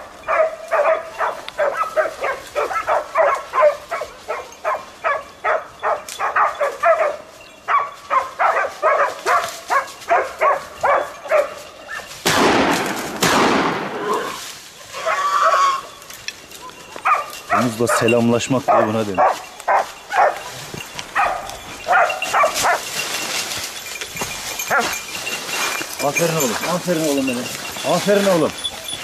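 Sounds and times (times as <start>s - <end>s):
dog barking: 0.2s - 12.1s, 17.0s - 20.5s, 21.1s - 22.9s, 24.6s - 25.0s.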